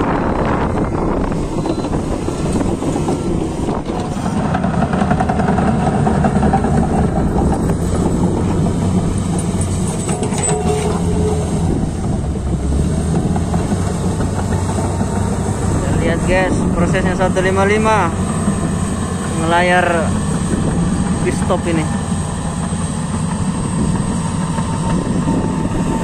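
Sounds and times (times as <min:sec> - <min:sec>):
bulldozer engine under load: 0:00.0 - 0:26.0
blade pushing dirt: 0:01.4 - 0:12.2.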